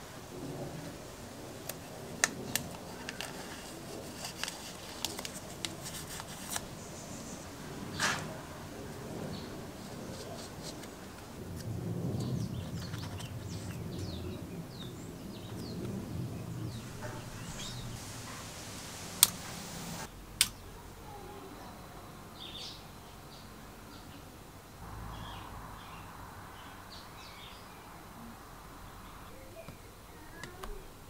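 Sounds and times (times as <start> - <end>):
handling noise: 16.6 - 20.1.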